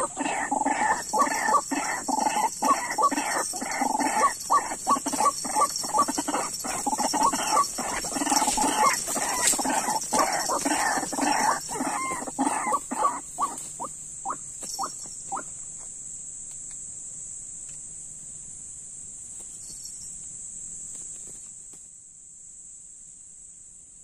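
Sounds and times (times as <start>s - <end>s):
bird clucking calls: 0.0s - 15.6s
high insect drone: 0.0s - 24.0s.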